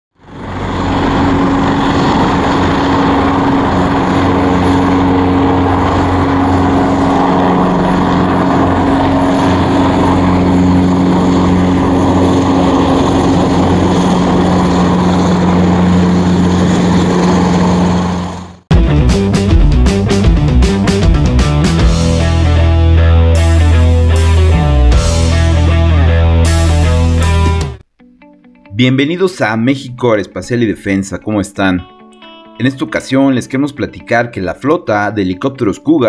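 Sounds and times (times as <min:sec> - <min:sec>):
helicopter hovering: 0:00.2 - 0:27.8.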